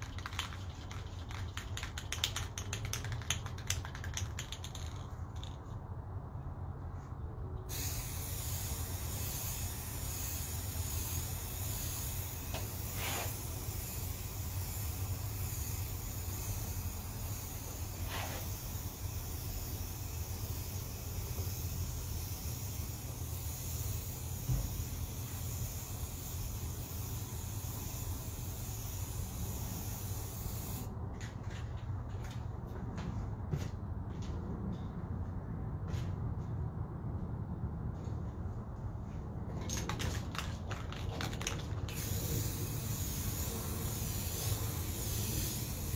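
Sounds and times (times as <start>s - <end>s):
spray-paint can hissing: 0.0s - 5.6s, 7.7s - 30.9s, 40.1s - 45.9s.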